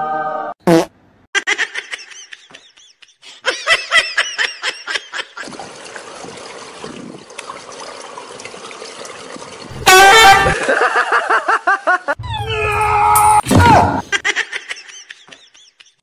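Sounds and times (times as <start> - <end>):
short loud sound: 9.7 - 10.7
high-pitched laughter: 10.1 - 12.8, 13.8 - 16.0.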